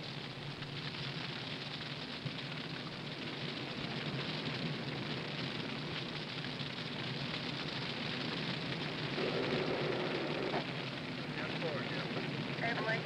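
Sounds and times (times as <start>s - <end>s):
fire crackling and rushing: 0.0s - 13.0s
low rumble: 8.3s - 13.0s.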